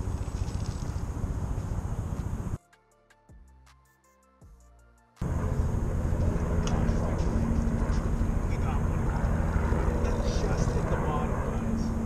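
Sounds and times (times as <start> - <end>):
soft background music with beats: 2.6 - 5.2.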